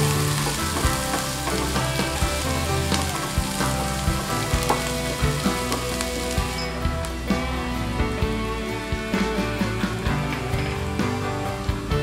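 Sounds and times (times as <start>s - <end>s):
wooden spatula scraping a pan: 0.0s - 6.8s
onions sizzling in a pan: 0.0s - 7.2s.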